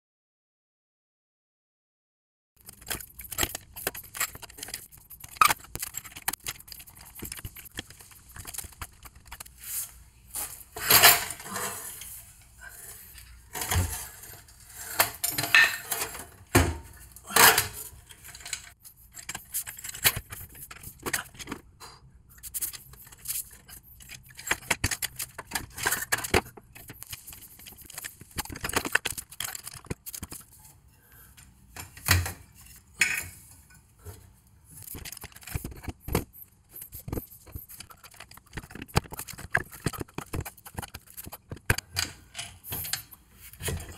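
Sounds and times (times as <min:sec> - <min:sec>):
metal clinking and scraping: 0:02.6 - 0:09.5, 0:10.3 - 0:16.4.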